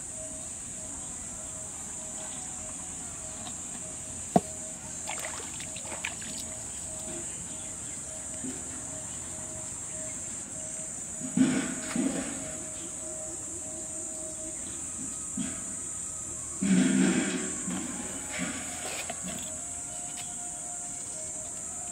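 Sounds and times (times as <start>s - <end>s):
high-pitched insect drone: 0.0s - 21.9s
pulsing insect call: 0.0s - 21.9s
water splashing and dribbling: 4.3s - 7.2s.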